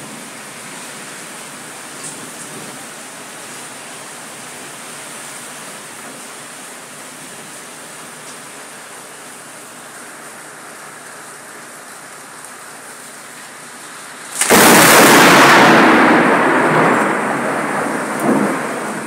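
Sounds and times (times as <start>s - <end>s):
steady rain falling: 0.0s - 19.0s
loud thunderclap rumbling: 14.4s - 19.0s.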